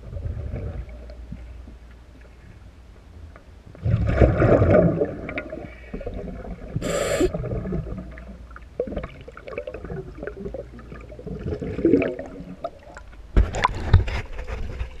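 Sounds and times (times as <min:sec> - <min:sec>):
air bubbles gurgling underwater: 0:03.8 - 0:13.1
water splashes and knocks: 0:13.0 - 0:15.0.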